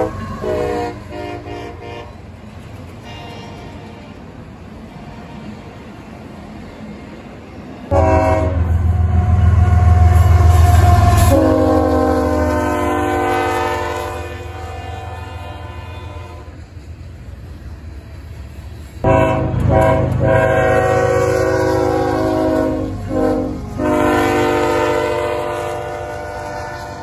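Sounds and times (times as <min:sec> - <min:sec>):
locomotive air horn: 0:00.0 - 0:02.2, 0:03.0 - 0:04.2, 0:07.9 - 0:16.6, 0:19.0 - 0:27.0
passing train rumble: 0:00.0 - 0:27.0.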